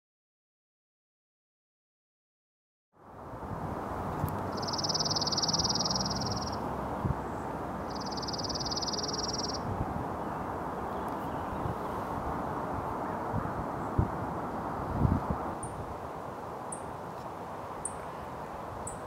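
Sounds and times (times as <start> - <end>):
low background hiss: 3.1 - 19.0
bird singing rapid trills: 4.5 - 6.6, 7.2 - 9.6.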